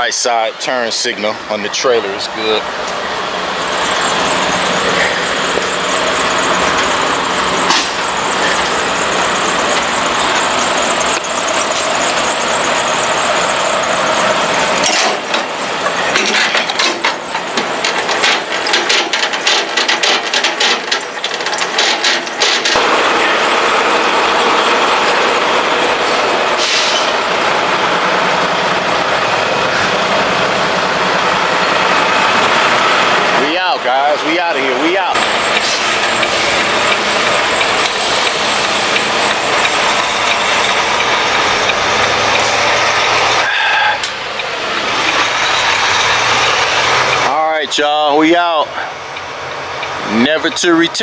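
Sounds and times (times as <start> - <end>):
diesel engine running: 0.0 - 51.0
rapid clicks and rattles: 16.1 - 22.8, 35.2 - 43.4.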